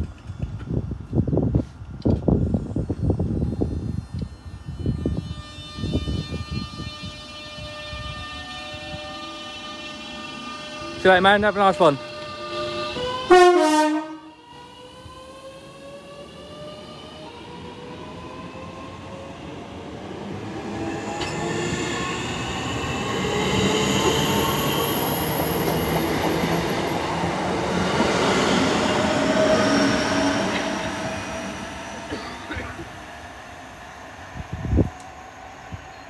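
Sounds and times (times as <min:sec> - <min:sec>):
electric train motors whining: 0:02.4 - 0:13.3.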